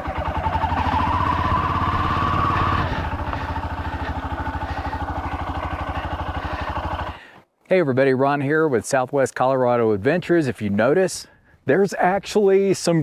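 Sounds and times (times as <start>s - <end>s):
motorcycle engine running: 0.0s - 7.3s.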